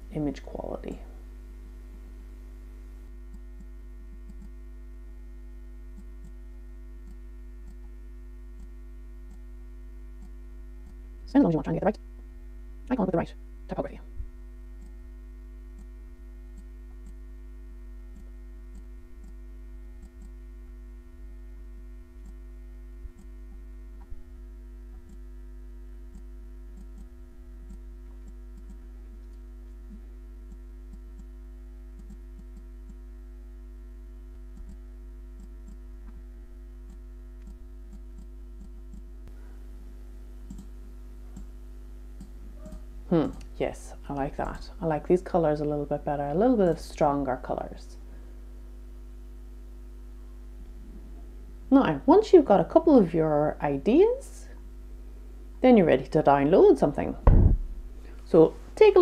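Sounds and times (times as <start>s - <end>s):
low electrical hum: 0.0s - 59.0s
computer mouse clicks: 3.3s - 4.6s, 6.0s - 6.4s, 7.0s - 7.9s, 25.0s - 25.2s, 26.1s - 27.1s, 32.0s - 33.0s, 34.6s - 34.8s, 36.9s - 39.1s, 40.5s - 41.5s, 42.2s - 43.5s.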